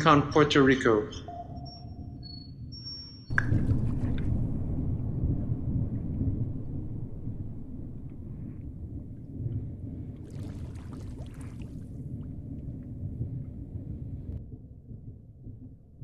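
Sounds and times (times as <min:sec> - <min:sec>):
low steady rumble: 0:03.3 - 0:16.0.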